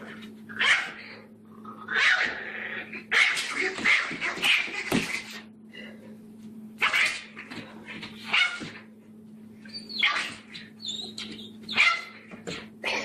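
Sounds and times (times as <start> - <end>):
puppy yapping: 9.7 - 13.0.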